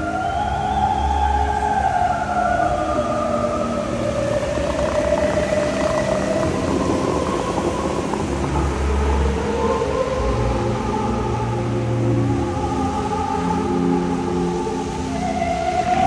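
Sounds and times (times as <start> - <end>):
fountain water jets rushing: 0.0 - 16.0.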